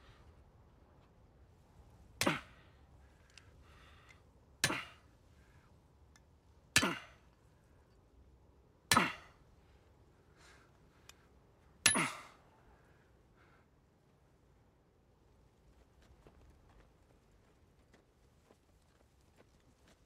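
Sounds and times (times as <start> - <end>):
rock striking metal bracelet: 11.8 - 12.3.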